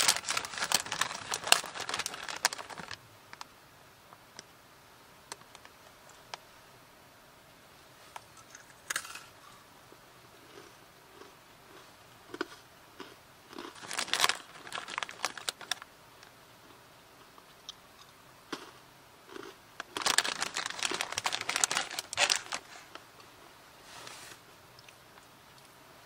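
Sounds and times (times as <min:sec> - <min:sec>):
plastic pouch crinkling: 0:00.0 - 0:03.0, 0:13.6 - 0:15.8, 0:19.8 - 0:23.0.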